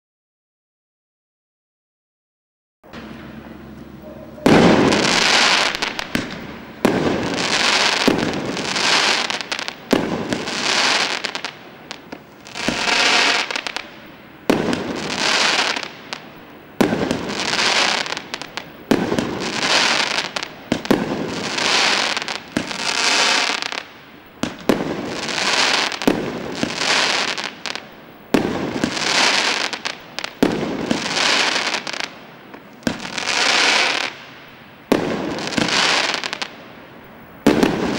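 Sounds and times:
firework bangs: 2.9 - 36.7, 37.3 - 37.9
firework stars hissing: 3.0 - 37.9.

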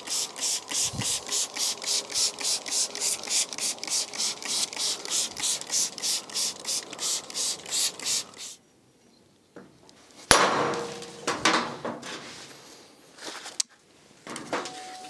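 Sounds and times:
spray bottle squirting water: 0.0 - 8.6.

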